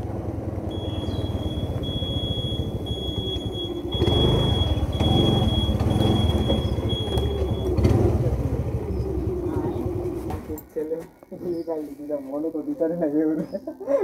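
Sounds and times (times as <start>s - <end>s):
motorcycle engine running: 0.0s - 11.3s
thin steady high tone: 0.7s - 7.7s.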